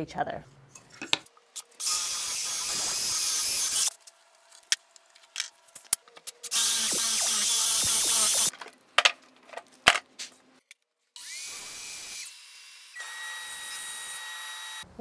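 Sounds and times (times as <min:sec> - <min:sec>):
drill boring into wood: 0:01.7 - 0:03.9, 0:06.5 - 0:08.5, 0:11.2 - 0:14.9.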